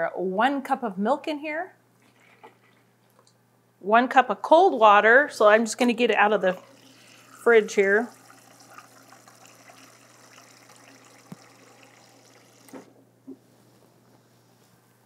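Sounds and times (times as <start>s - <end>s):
water running into a cup: 6.4s - 12.9s.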